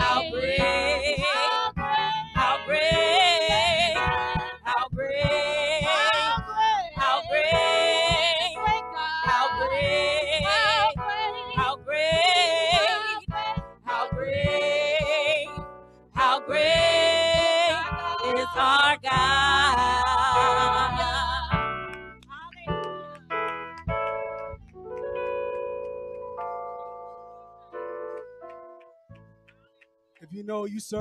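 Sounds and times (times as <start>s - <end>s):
gospel singers with vibrato: 0.0s - 21.9s
instrumental accompaniment: 0.0s - 30.2s
sparse keyboard notes: 0.0s - 31.0s.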